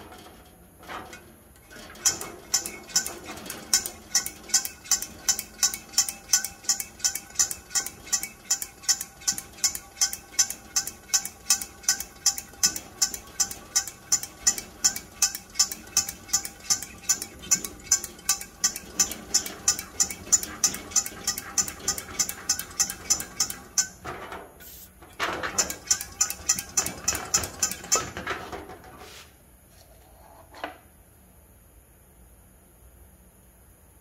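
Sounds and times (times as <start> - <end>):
stove hand pump strokes: 1.6 - 24.0, 25.6 - 28.1.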